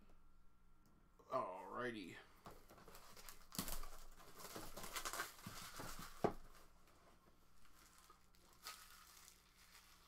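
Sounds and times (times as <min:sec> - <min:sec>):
soft rustling and crinkling: 0:02.4 - 0:10.0.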